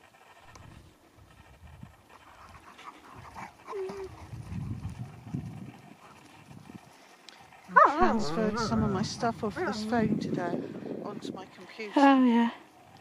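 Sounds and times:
dogs panting: 0.0s - 12.0s
dog whining: 7.7s - 9.0s.

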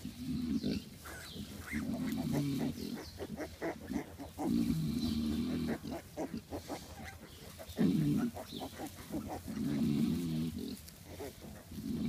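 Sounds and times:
piglets snuffling: 0.0s - 12.0s
sow grunting low: 0.0s - 12.0s
straw rustling: 3.4s - 12.0s.

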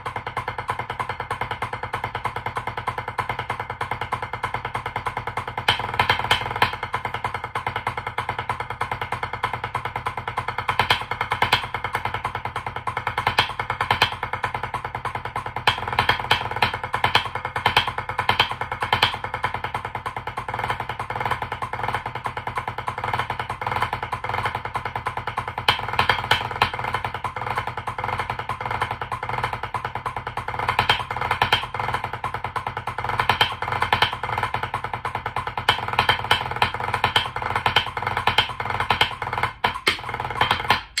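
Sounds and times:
drumsticks on practice pad: 36.0s - 41.0s.

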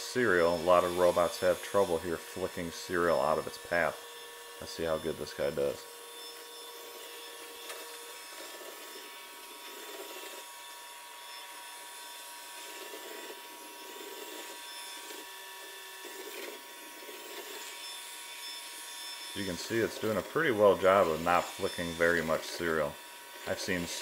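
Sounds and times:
vacuum sweeping up cereal: 0.0s - 4.0s, 4.6s - 10.8s, 12.3s - 17.8s, 19.3s - 24.0s
robot vacuum hiss and whine: 0.0s - 24.0s.

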